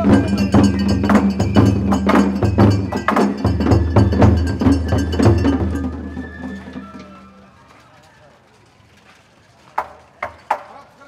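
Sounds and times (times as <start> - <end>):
festival drums and percussion: 0.0 - 7.7.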